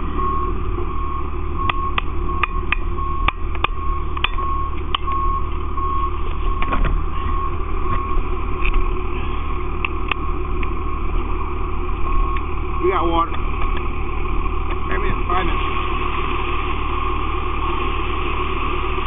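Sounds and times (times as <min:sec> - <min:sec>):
electronic warning beeps: 0:00.0 - 0:08.3, 0:10.1 - 0:10.6, 0:12.0 - 0:13.1
fire engine rumbling: 0:00.0 - 0:19.0.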